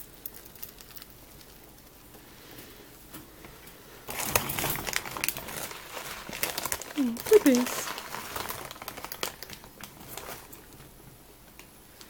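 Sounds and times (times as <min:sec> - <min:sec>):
loud rustling and crinkling: 0:04.0 - 0:11.0.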